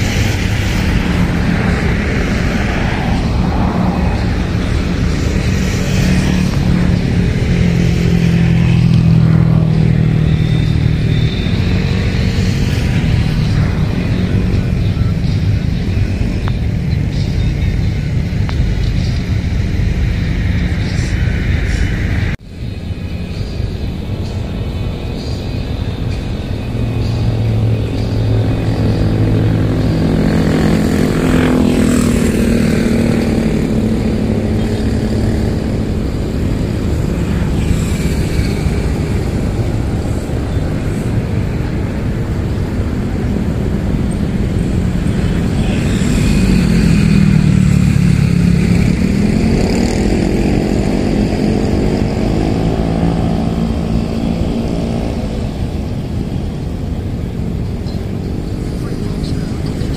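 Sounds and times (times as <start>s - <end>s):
low rumble: 0.0s - 25.1s
engines running: 0.0s - 59.9s.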